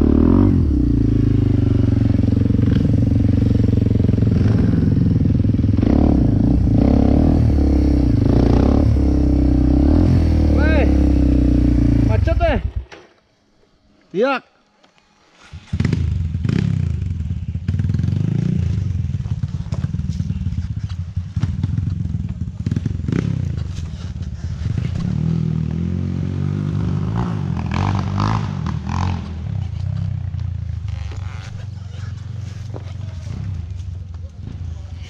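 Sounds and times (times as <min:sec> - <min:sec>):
dirt bike engine revving: 0:00.0 - 0:12.9, 0:15.5 - 0:29.6
bike clattering and scraping: 0:18.6 - 0:25.8, 0:29.2 - 0:35.0.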